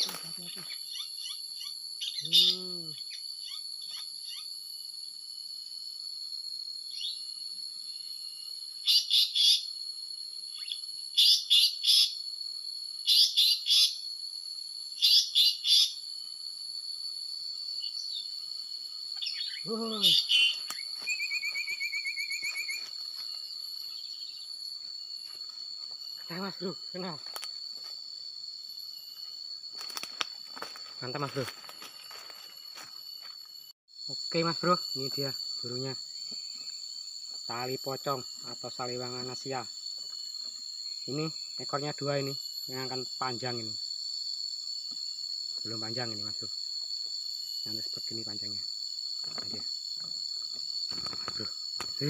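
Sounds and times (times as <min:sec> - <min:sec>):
forest insects droning: 0:00.0 - 0:52.0
harsh bird calls: 0:19.2 - 0:22.8.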